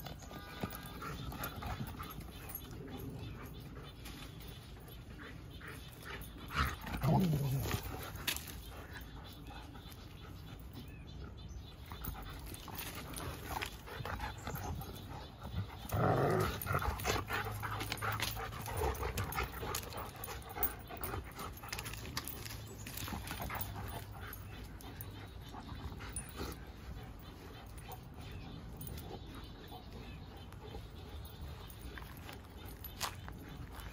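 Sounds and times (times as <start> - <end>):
dog sounds: 0.0 - 33.9
dogs scuffling on loose dirt: 0.0 - 33.9.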